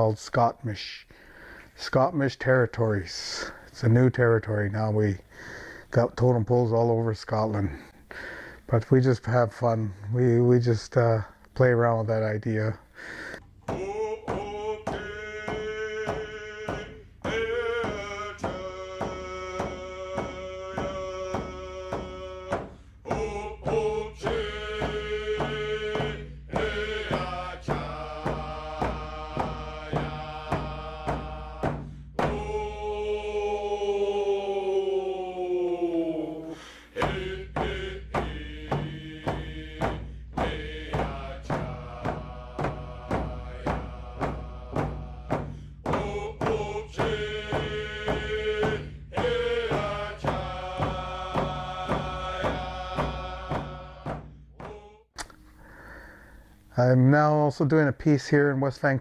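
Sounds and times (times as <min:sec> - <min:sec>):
steady drumbeat: 0:12.6 - 0:34.8, 0:36.6 - 0:55.1.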